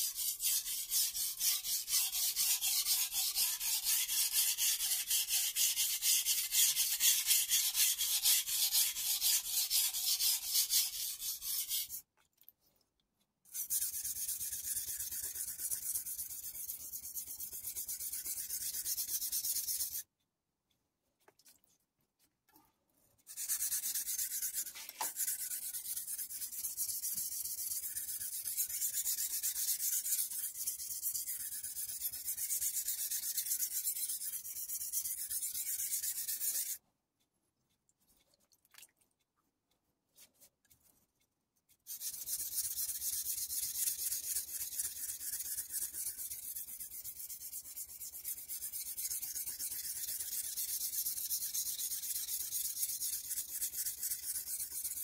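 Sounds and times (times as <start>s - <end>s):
knife scraping on whetstone: 0.0s - 12.0s, 23.3s - 36.8s, 41.9s - 55.0s.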